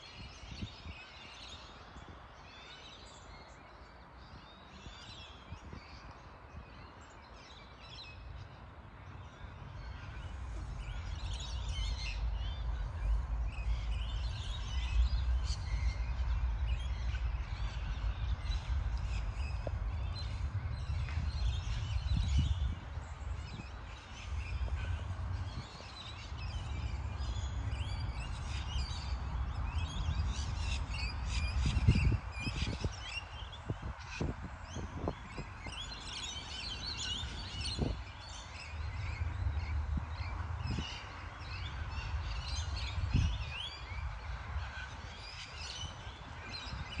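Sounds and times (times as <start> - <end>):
birds chirping: 0.6 - 47.0
low rumble: 9.8 - 32.2.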